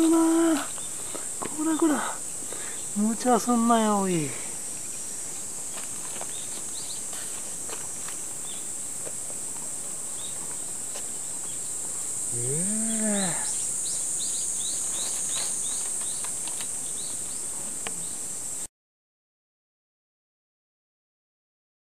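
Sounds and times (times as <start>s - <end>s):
insects droning: 0.0s - 18.7s
rising and falling animal call: 12.3s - 13.6s.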